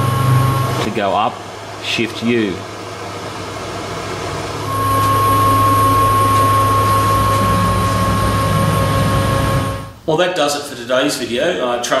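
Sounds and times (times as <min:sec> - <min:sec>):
motor whine: 0:00.0 - 0:00.8, 0:03.4 - 0:10.0
low hum: 0:03.1 - 0:10.0.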